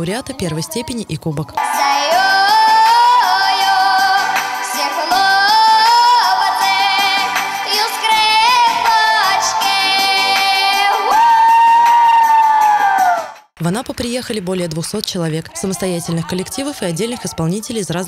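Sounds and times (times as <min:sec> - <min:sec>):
girl singing into microphone: 0:01.6 - 0:11.5.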